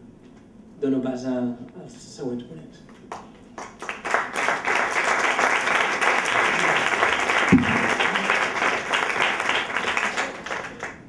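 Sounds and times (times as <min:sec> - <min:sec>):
audience applauding: 0:03.1 - 0:11.0
dull thump: 0:07.5 - 0:07.9.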